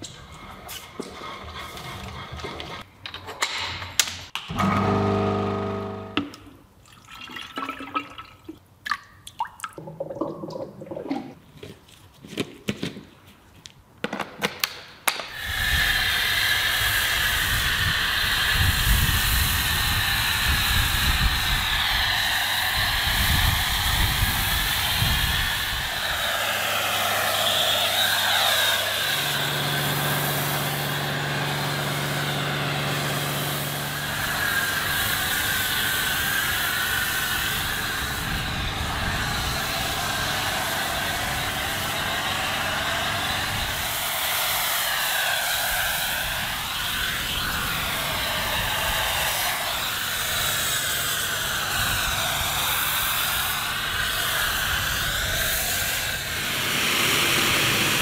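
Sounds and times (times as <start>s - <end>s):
pressure washer spray hiss: 15.3s - 58.0s.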